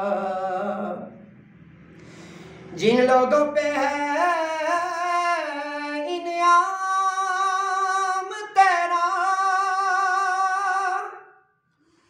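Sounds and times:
man singing unaccompanied hymn: 0:00.0 - 0:01.2, 0:02.7 - 0:11.2.

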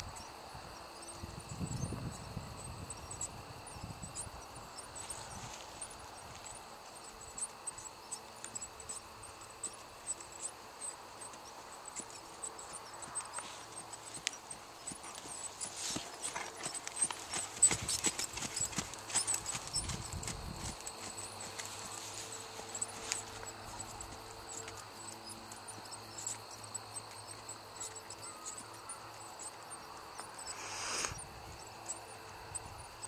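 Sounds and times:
horse hoofbeats on dirt: 0:05.0 - 0:30.3.

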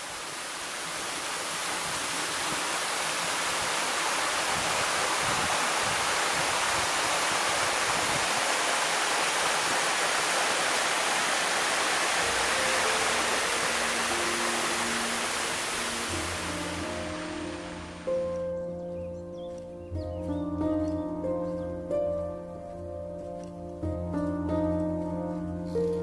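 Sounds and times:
waterfall pouring into pool: 0:00.0 - 0:18.1
soft sustained music notes: 0:12.1 - 0:26.0.

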